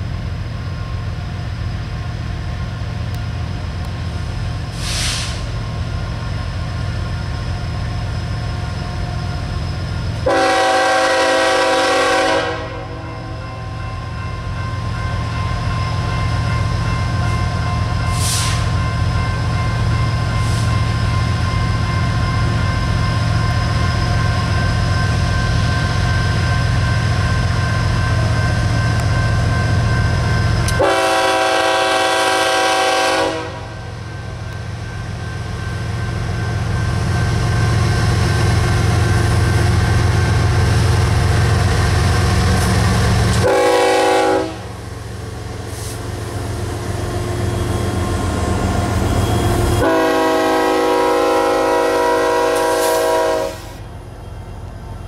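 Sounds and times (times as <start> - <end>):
locomotive air horn: 10.2 - 13.5, 30.8 - 33.8, 43.4 - 44.8, 49.8 - 53.8.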